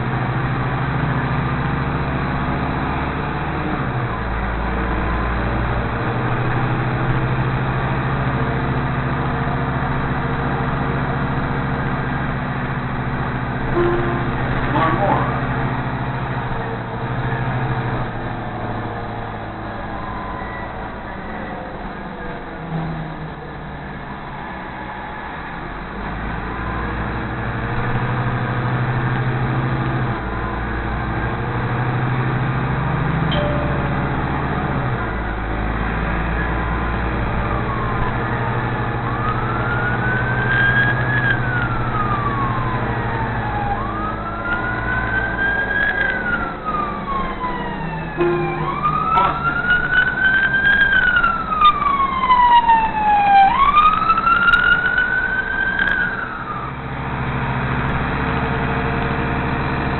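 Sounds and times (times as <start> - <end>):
city bus engine running: 0.0 - 59.9
siren wailing: 13.2 - 16.8, 19.5 - 21.8, 33.2 - 57.1.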